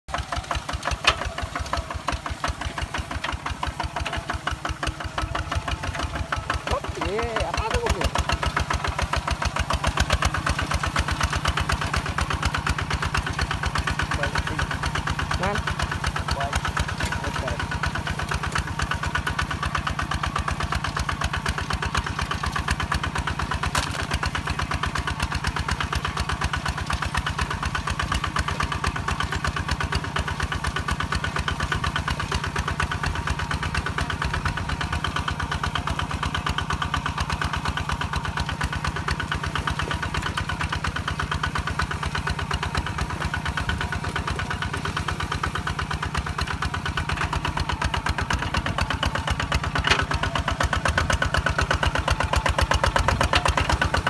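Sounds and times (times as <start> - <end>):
diesel tractor engine chugging: 0.1 - 54.0.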